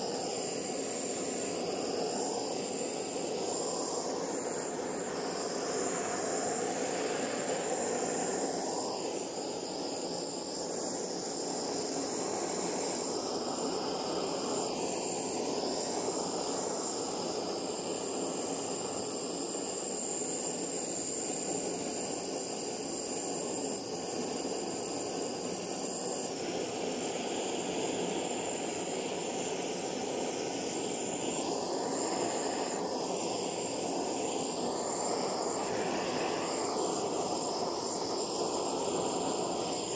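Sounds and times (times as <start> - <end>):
gas torch flame rushing: 23.4 - 39.9.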